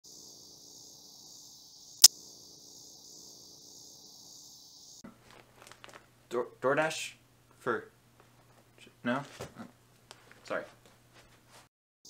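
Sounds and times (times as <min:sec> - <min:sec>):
crickets chirring: 0:00.1 - 0:05.0.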